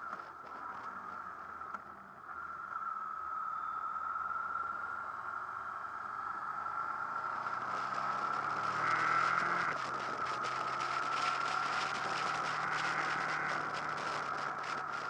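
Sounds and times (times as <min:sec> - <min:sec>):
motorcycle engine: 0:06.5 - 0:15.0.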